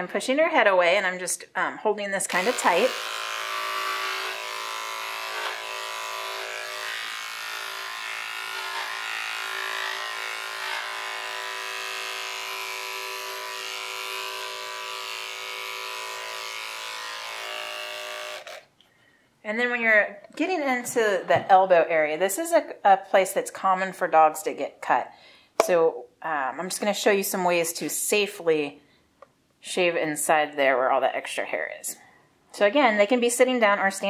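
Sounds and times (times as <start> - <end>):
electric clipper buzzing: 2.3 - 18.7.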